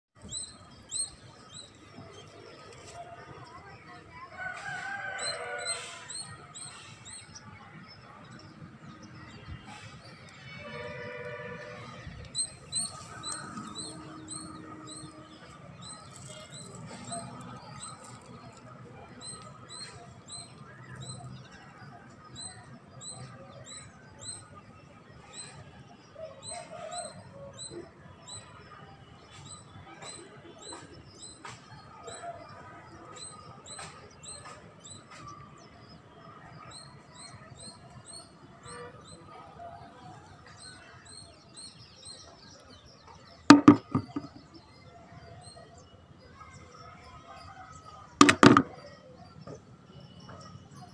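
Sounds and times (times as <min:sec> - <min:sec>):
light knocks: 0:43.5 - 0:44.4, 0:48.2 - 0:48.8.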